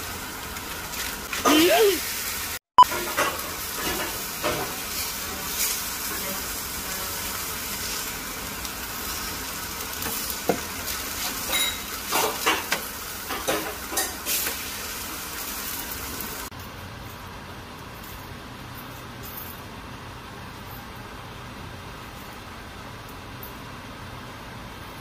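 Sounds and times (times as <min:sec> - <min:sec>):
chicken sizzling on a tray: 0:00.0 - 0:16.5.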